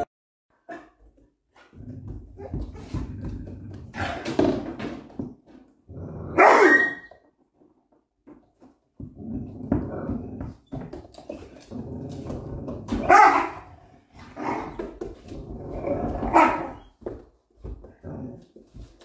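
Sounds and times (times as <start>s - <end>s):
dog barking: 6.4s - 7.0s, 13.0s - 13.7s
dog growling: 11.3s - 16.8s.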